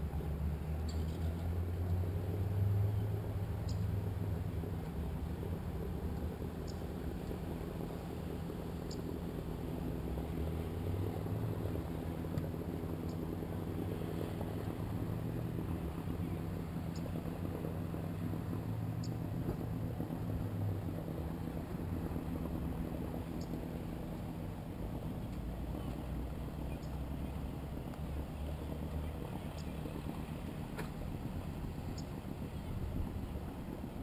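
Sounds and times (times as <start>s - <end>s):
engine droning: 0.0s - 34.0s
faint ticks: 0.8s - 2.0s, 3.6s - 3.9s, 23.4s - 23.6s, 29.5s - 29.8s.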